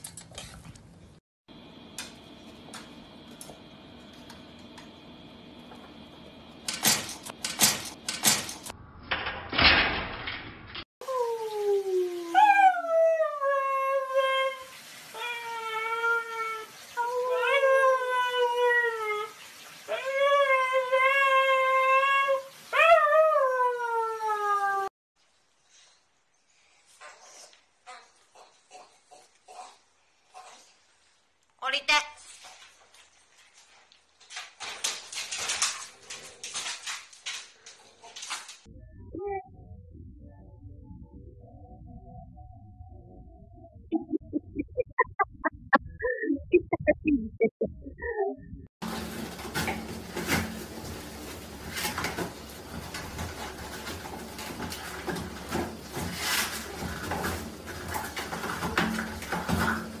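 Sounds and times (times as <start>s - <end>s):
toilet paper ripping: 32.2s - 38.7s, 48.8s - 60.0s
dog scuffling on wire crate: 48.8s - 60.0s.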